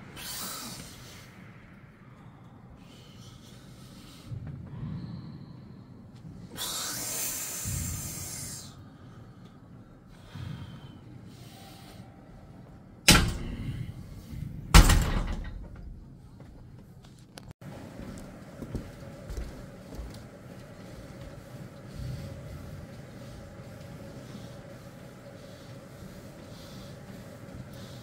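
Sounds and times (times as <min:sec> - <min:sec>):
hiss: 0:00.0 - 0:05.3, 0:06.4 - 0:08.8.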